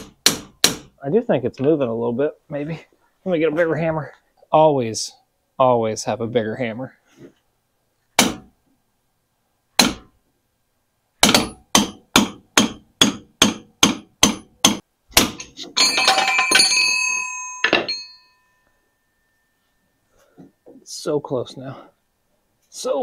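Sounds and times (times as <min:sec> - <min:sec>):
hammer striking steel fork: 0:11.2 - 0:18.7
metallic clanging and ringing: 0:15.4 - 0:20.7.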